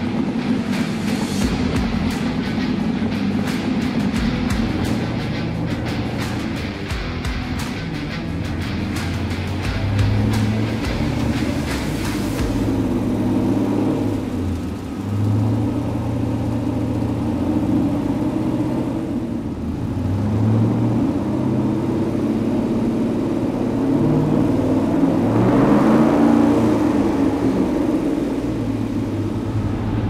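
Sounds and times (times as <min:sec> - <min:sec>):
car engine revving on dyno: 0:00.0 - 0:05.4, 0:08.9 - 0:30.0.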